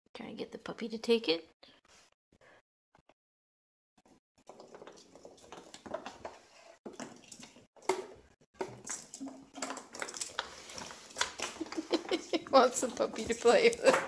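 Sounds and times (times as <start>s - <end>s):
paws and claws on hard floor: 4.4s - 12.2s.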